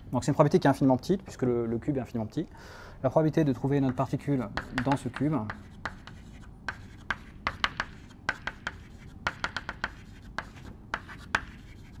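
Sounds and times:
chalk scratching on blackboard: 3.5s - 12.0s.

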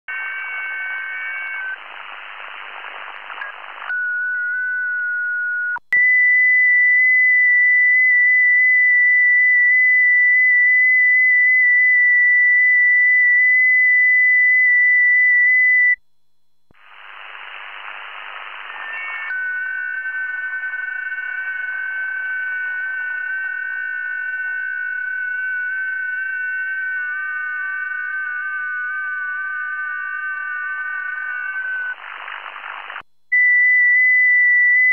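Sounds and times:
radio receiver hiss: 0.1s - 3.9s, 16.7s - 33.1s.

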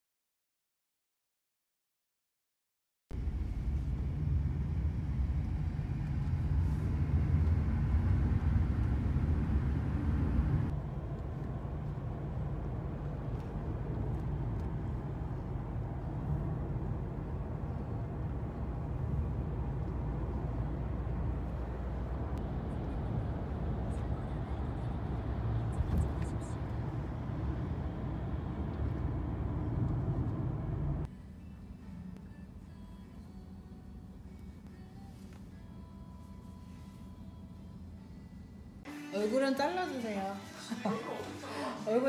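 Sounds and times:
car cabin road and engine rumble: 3.1s - 38.9s.

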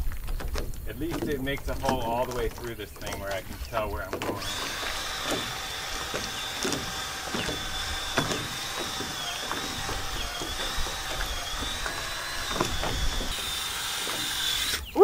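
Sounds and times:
drill bit chewing through wood: 1.0s - 15.0s
power drill motor whine: 4.3s - 15.0s.

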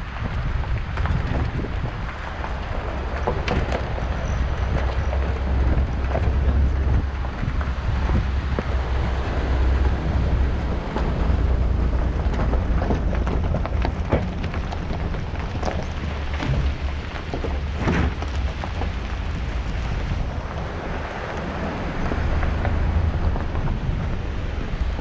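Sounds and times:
gravel pops and crackles: 0.0s - 25.0s
wind buffeting microphone: 0.0s - 25.0s.

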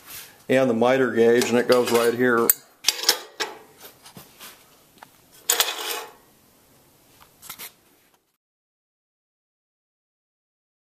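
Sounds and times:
metal scraping slide: 5.4s - 6.2s.

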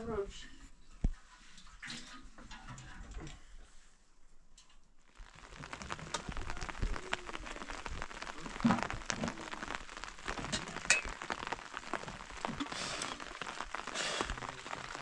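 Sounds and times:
heavy rain on a hard surface: 5.1s - 15.0s.

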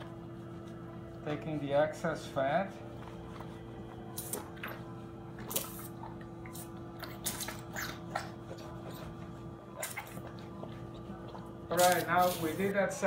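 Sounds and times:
steady low hum: 0.0s - 13.0s
wet slurping and gurgling suction: 3.5s - 12.7s.

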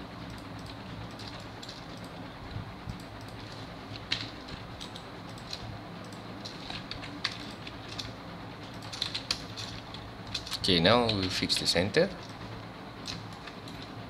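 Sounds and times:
steady low hum: 0.0s - 14.0s
keyboard and mouse clicks: 0.3s - 2.2s, 2.9s - 12.4s, 13.0s - 13.9s.

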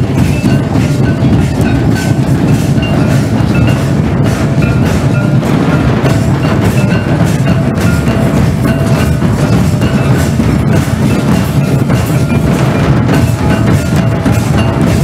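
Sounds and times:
drums playing: 0.0s - 15.0s.

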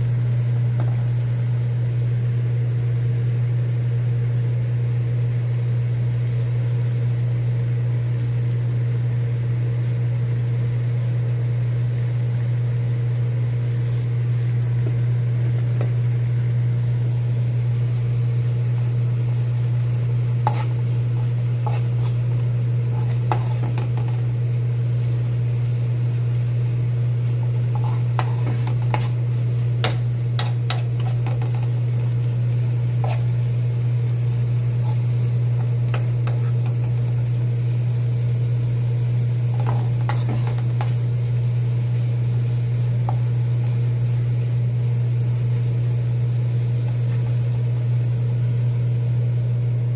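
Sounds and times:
light sizzling: 0.0s - 49.9s
steady low hum: 0.0s - 49.9s
spoon scraping frying pan: 20.4s - 24.3s, 27.5s - 31.8s, 33.0s - 33.4s, 34.8s - 37.0s, 39.5s - 41.0s.

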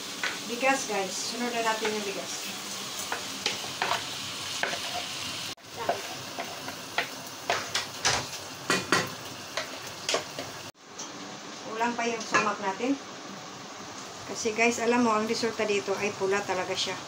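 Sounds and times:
food sizzling in a pot: 0.0s - 17.0s
spatula scraping and tapping: 3.1s - 5.1s, 5.8s - 10.5s.

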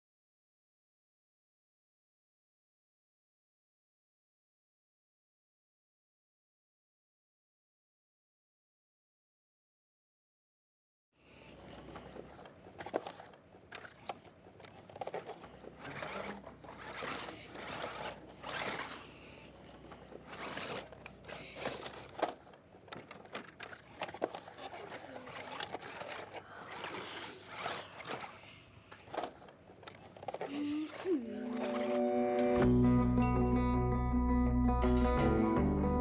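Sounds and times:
soil scraping and crunching: 12.8s - 32.6s
soft voices: 15.2s - 22.5s, 24.3s - 29.5s, 30.3s - 32.6s.

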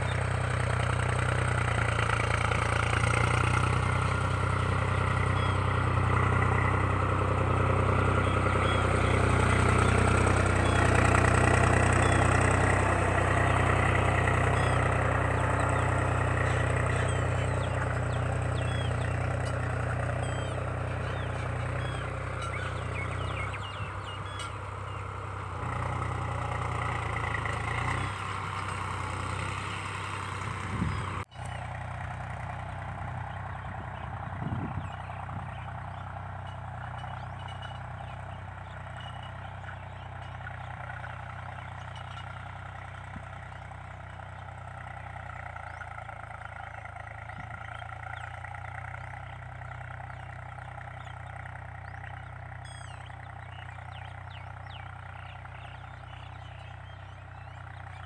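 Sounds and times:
engine idling: 0.0s - 58.0s.

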